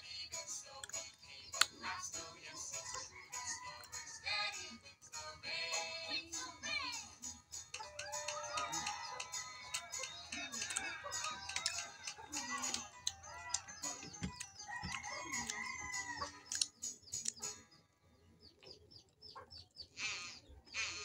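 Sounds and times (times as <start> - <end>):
chickens clucking: 0.7 - 4.8, 7.2 - 21.0
rooster crowing: 2.8 - 4.6, 7.8 - 16.6.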